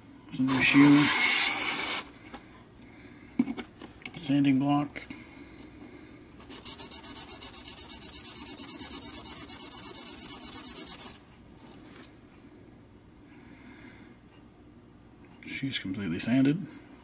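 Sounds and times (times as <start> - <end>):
metal rubbing on sandpaper: 0.5 - 2.0, 6.5 - 11.2.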